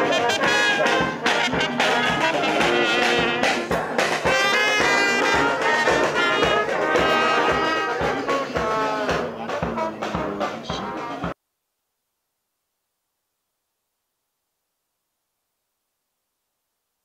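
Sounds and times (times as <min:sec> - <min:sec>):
brass band playing a tune: 0:00.0 - 0:11.4
steady beat: 0:00.0 - 0:11.4.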